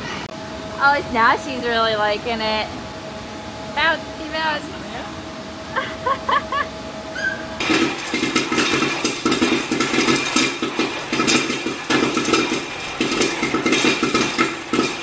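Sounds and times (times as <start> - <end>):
popcorn popper crank rattling: 7.6 - 15.0.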